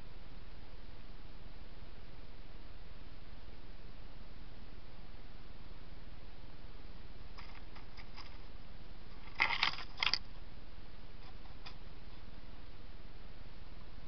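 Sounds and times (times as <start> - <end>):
microphone hiss: 0.0 - 14.0
sharp clicks and crackles: 7.4 - 8.5, 9.1 - 10.4.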